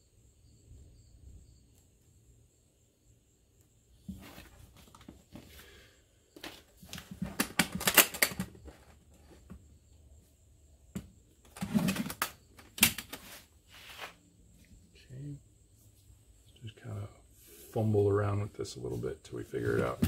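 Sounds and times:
plastic case rustling: 4.1 - 5.6, 6.4 - 9.6, 11.5 - 13.5.

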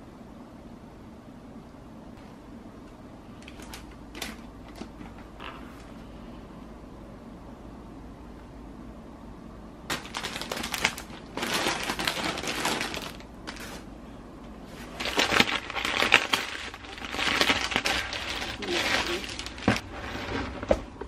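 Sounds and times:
plastic bags crinkling: 3.4 - 5.3, 9.9 - 14.0, 14.6 - 20.0.

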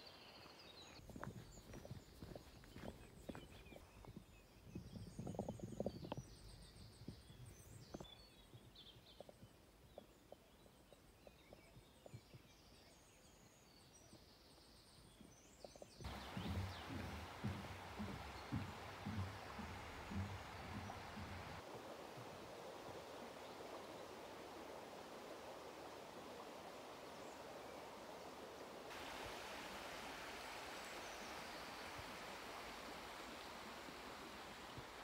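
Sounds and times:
songbirds calling with trills: 0.0 - 21.6
soft knocks and rustles: 16.1 - 21.6
loud rustling hiss: 16.1 - 35.0.

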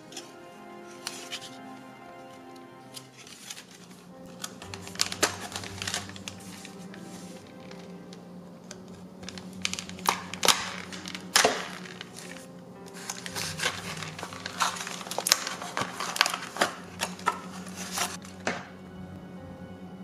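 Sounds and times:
soft background music: 0.0 - 20.0
plastic packaging crinkling: 3.2 - 18.6.

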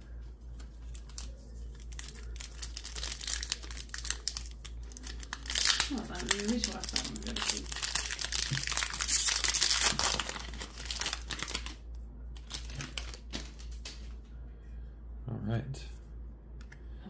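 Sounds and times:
foil pack crinkling: 0.5 - 11.8, 12.4 - 14.1.

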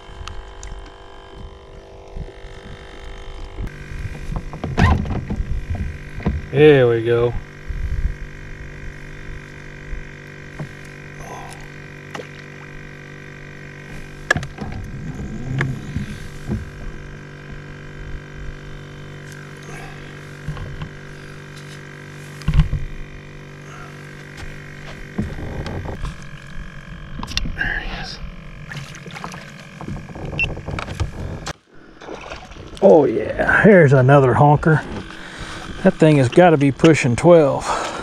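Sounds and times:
steady tonal hum: 0.0 - 38.0
knocks and bumps: 4.1 - 6.5, 24.4 - 26.2.

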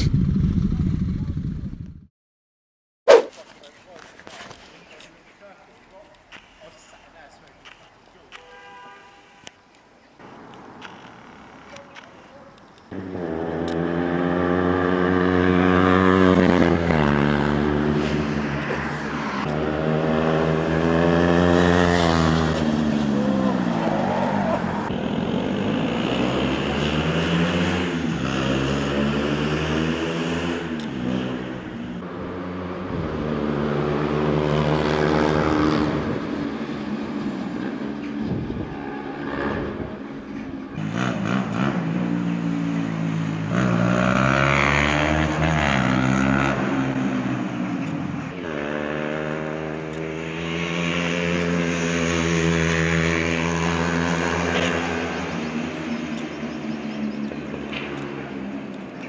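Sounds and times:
motorcycles revving past: 12.9 - 59.0.

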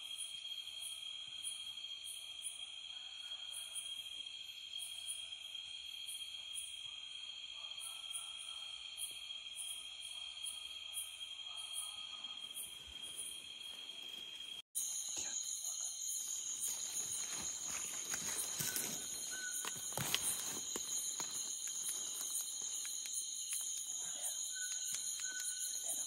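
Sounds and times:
insect chorus trilling drone: 0.0 - 26.0
footsteps through undergrowth: 16.3 - 23.2.

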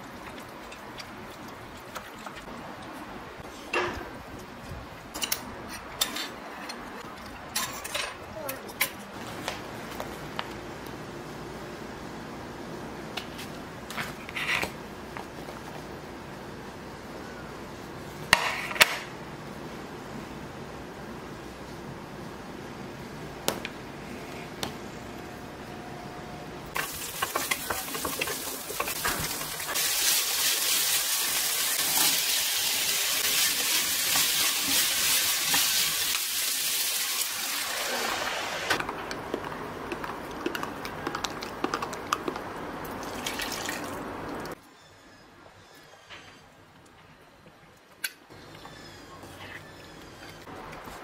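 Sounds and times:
spatula scraping a pan: 26.8 - 30.8
food sizzling in a frying pan: 26.8 - 38.7.

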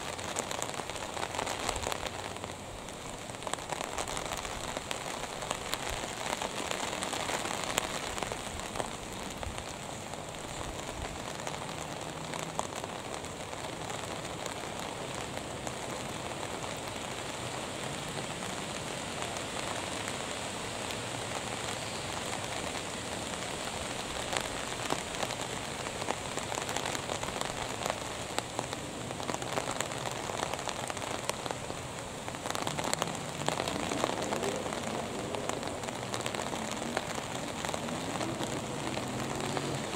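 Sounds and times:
steady rain falling: 0.0 - 39.9.

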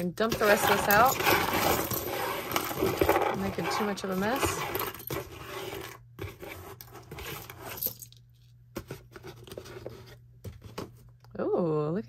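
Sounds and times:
jewelry clinking and rattling: 0.2 - 5.9.

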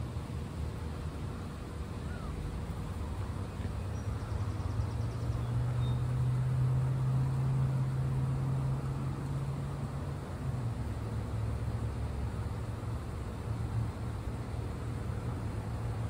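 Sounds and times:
engine droning: 0.0 - 16.0
faint bird chirps: 2.0 - 2.4.

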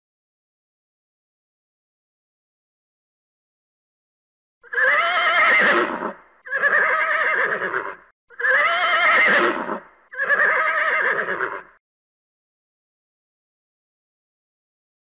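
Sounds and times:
horse neighing: 4.6 - 11.8.

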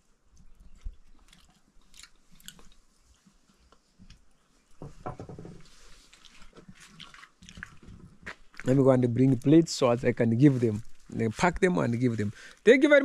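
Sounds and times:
person chewing: 0.4 - 4.3, 5.8 - 8.6.

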